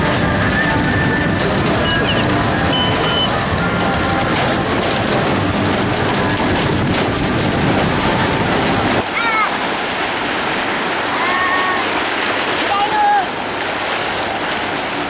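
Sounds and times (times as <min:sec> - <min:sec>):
faint fairground music: 0:00.0 - 0:09.1
loud rumble and hiss: 0:00.0 - 0:15.0.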